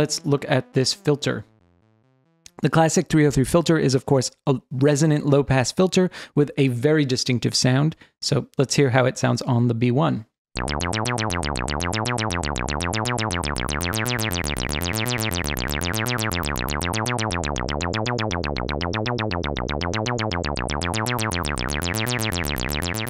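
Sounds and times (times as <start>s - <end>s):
squelchy acid bass synth sequence: 10.6s - 23.0s.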